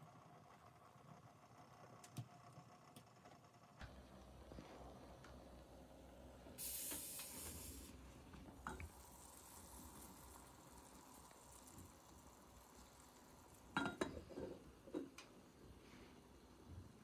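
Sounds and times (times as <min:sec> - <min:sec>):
loud sizzling hiss: 0:06.6 - 0:13.8
water bubbling in kettle: 0:08.4 - 0:17.0
metal kettle clink: 0:13.7 - 0:15.2.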